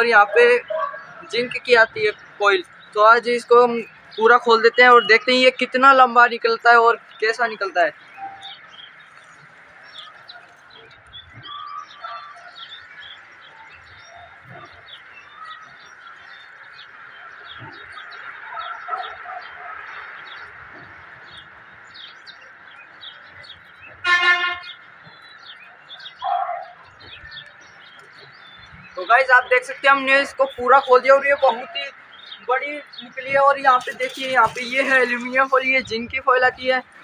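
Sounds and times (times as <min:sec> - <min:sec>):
small birds chirping: 0:00.0 - 0:37.0
loud honk-like note: 0:24.0 - 0:24.7.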